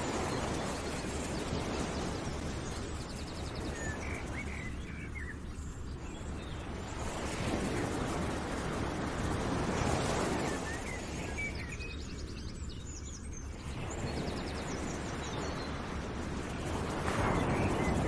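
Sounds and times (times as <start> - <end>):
birds chirping: 0.0 - 7.8.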